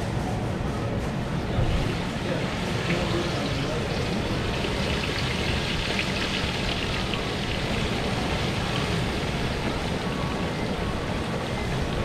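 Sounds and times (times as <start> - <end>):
gas burner running: 1.8 - 12.0
oil sizzling and crackling: 2.7 - 9.9.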